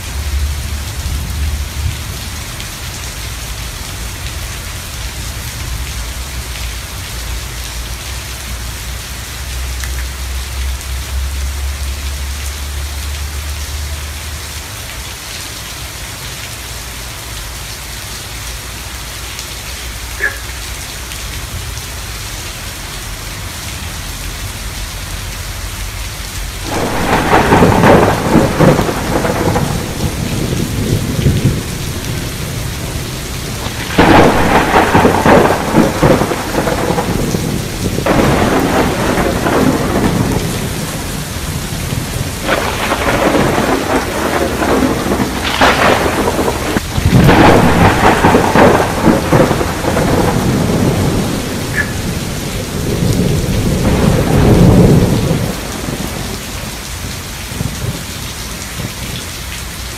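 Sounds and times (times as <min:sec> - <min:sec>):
steady rain: 0:00.0 - 0:59.9
thunder rolls: 0:26.6 - 0:56.8.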